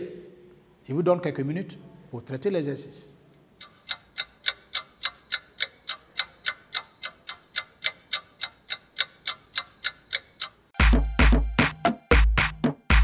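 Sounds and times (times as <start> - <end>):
fast clock ticking: 3.6 - 10.8.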